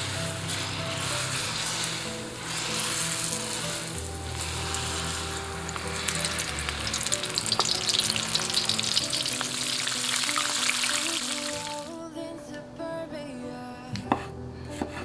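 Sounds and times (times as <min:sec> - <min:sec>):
shrimp frying in hot oil: 0:00.0 - 0:11.9.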